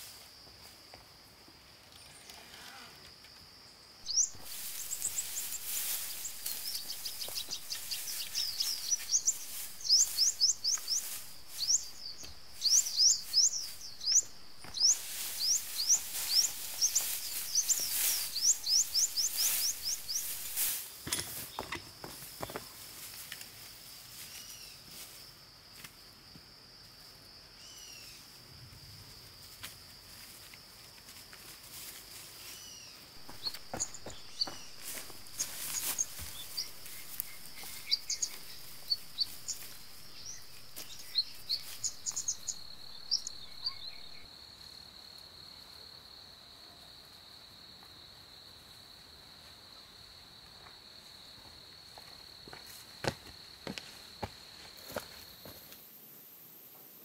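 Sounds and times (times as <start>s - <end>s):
forest insects droning: 0.0s - 57.0s
short bird chirps: 32.6s - 44.2s.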